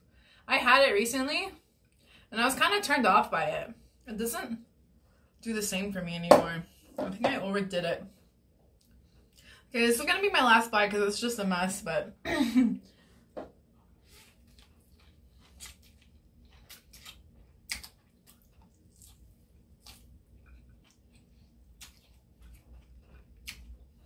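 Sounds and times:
wet chewing and lip smacks: 14.3 - 24.0.

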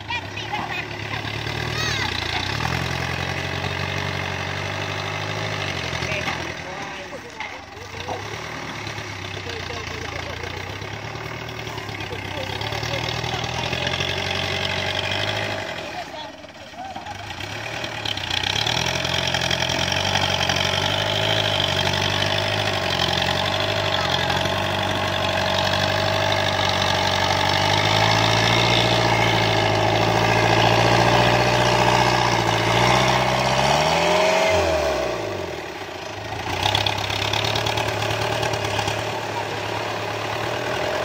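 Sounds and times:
tractor engine running: 0.0 - 41.0.

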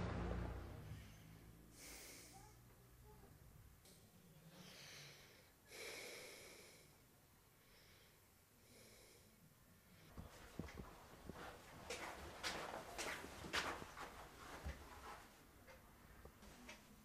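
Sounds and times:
man breathing in sleep: 0.8 - 2.6, 4.4 - 10.2.

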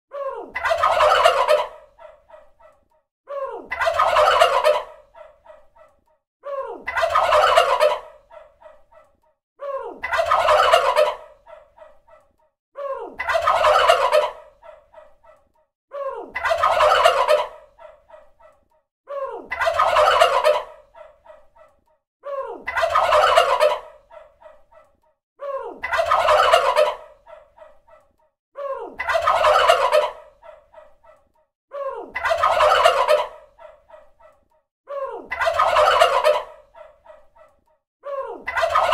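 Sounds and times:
turkey gobbling: 0.6 - 2.2, 3.8 - 5.3, 7.0 - 8.4, 10.1 - 11.6, 13.3 - 14.8, 16.4 - 18.0, 19.6 - 21.1, 22.8 - 24.0, 25.9 - 27.1, 29.0 - 30.6, 32.2 - 33.8, 35.4 - 36.9, 38.5 - 38.9.

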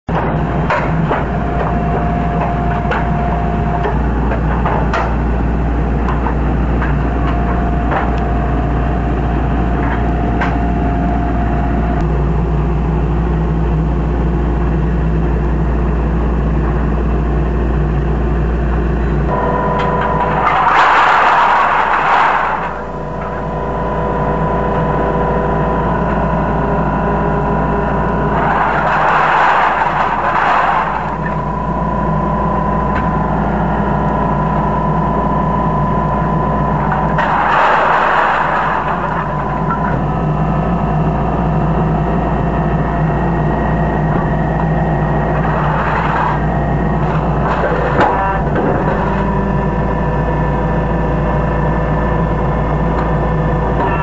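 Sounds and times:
can-crushing machine motor hum: 19.2 - 54.0.

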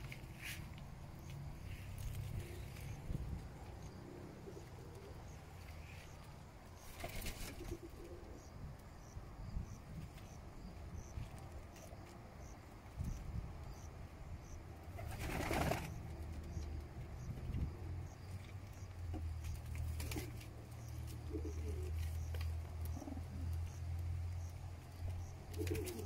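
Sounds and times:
pigeons cooing: 3.7 - 6.2, 6.8 - 8.6, 21.1 - 23.8, 25.5 - 26.0
wings flapping: 6.8 - 8.0, 14.9 - 16.0, 19.5 - 20.5, 25.5 - 26.0.

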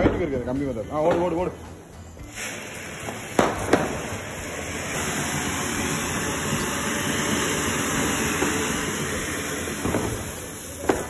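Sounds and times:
firework fizzing hiss: 0.0 - 11.0
sharp cracks: 3.0 - 4.3.

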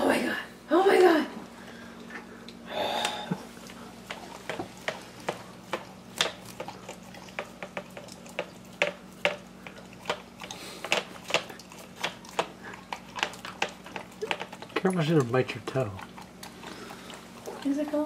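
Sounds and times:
dog licking: 3.6 - 18.0.

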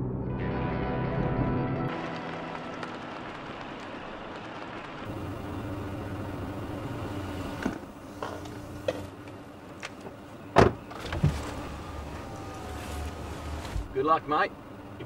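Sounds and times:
car engine idling: 2.0 - 15.0
car door thump: 10.5 - 11.6.

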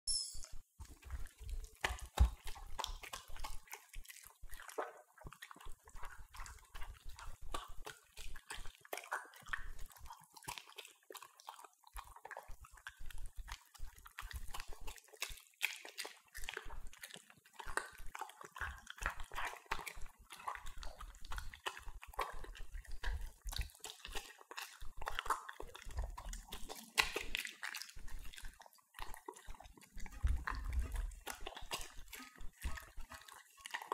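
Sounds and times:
dogs chewing and lapping: 0.8 - 33.9
dogs licking metal bowls: 0.8 - 33.9.

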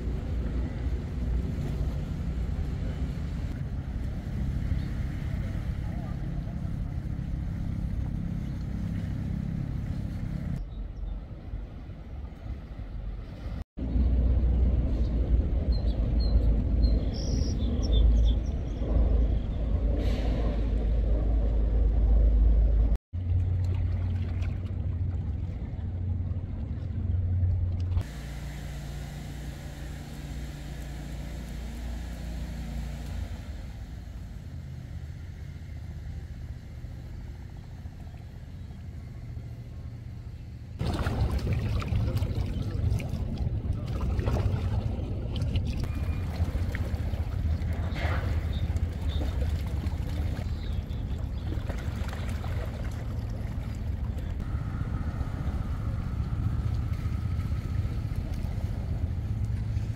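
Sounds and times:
traffic engine rumble: 0.0 - 59.9.

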